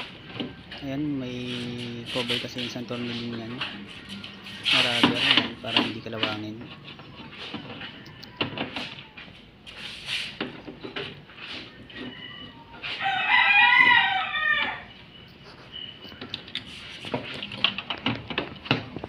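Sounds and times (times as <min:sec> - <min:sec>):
rooster crowing: 0:06.3 - 0:09.5, 0:11.6 - 0:15.2.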